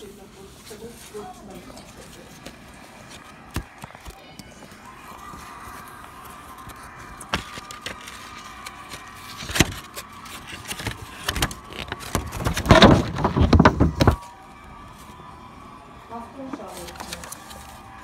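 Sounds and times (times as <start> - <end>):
rustling and scraping: 0.0 - 14.2.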